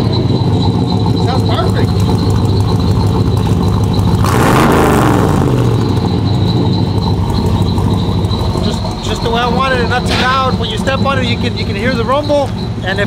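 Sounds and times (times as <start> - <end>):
car engine idling and revving: 0.0 - 13.0.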